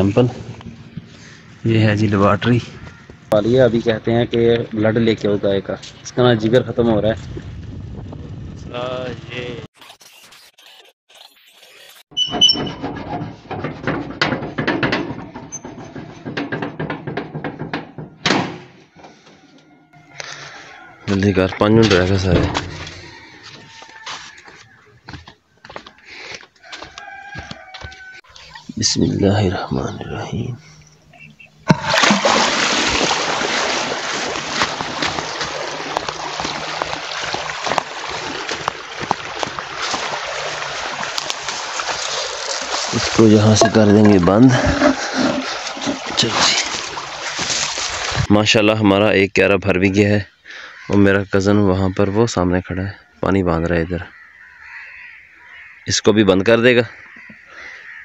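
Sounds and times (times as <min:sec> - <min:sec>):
knocking and rattling on door: 0:12.4 - 0:18.8
water rushing and splashing: 0:31.7 - 0:48.3.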